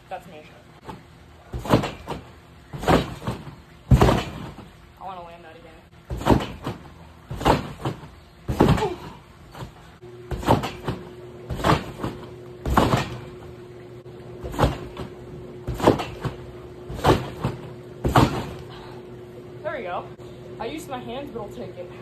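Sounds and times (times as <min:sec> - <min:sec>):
faint steady hum: 0:00.0 - 0:22.0
trampoline bed thumping: 0:00.8 - 0:04.8, 0:06.0 - 0:13.6, 0:14.3 - 0:18.9.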